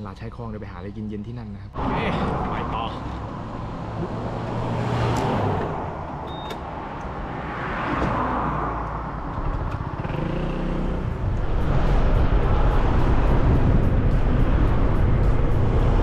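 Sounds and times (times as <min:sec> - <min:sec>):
vehicles passing: 0:01.7 - 0:16.0
scooter engine: 0:09.2 - 0:11.4
wind rumbling on microphone: 0:10.8 - 0:16.0.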